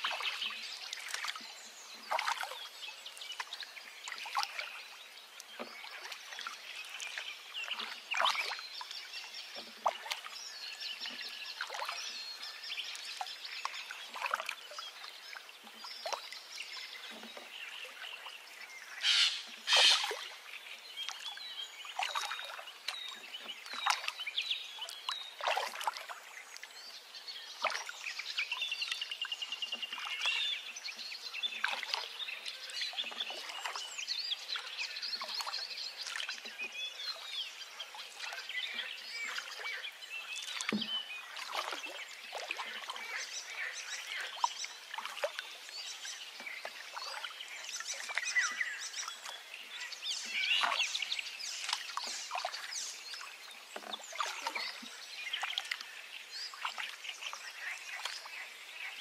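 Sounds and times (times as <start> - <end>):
bird trill: 19.0 - 20.1
birds chirping and calling: 19.0 - 20.2.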